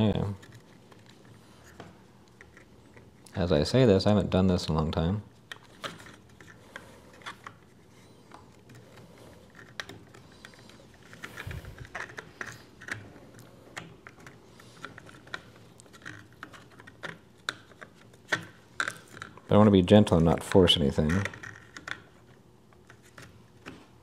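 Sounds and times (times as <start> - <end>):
plastic parts clicking and tapping: 8.3 - 19.5, 21.0 - 24.0.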